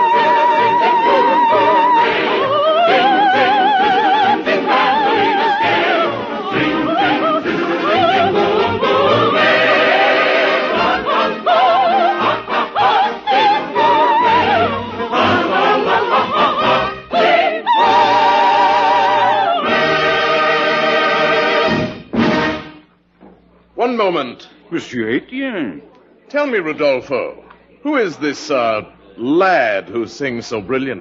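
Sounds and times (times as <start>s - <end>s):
soprano singing: 0.0s - 21.7s
choir and orchestra: 0.0s - 22.8s.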